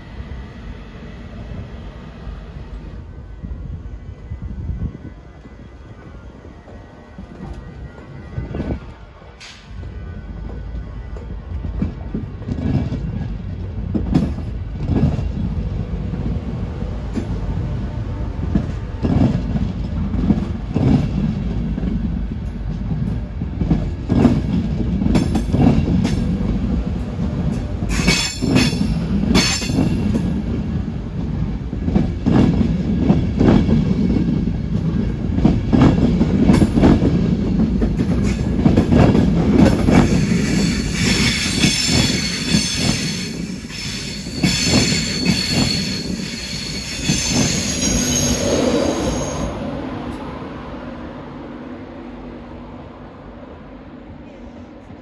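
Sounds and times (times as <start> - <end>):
train coaches rolling past: 0.0 - 55.0
high-pitched wheel squeal: 40.4 - 49.6.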